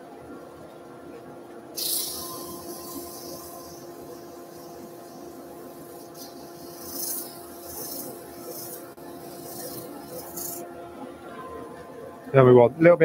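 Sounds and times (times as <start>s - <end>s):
sandpaper hissing against wood: 1.8s - 10.6s
lathe humming: 1.8s - 11.1s.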